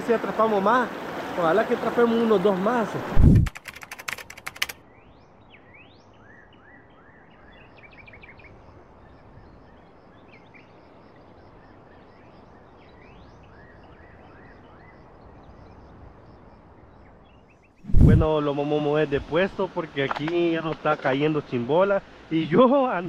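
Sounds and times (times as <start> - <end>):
river water rushing: 0.0 - 3.3, 17.9 - 23.0.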